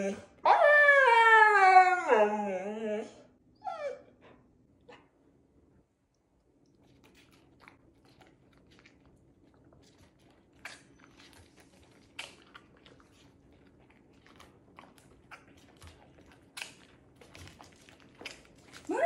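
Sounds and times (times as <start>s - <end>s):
dog chewing and crunching: 6.4s - 19.0s.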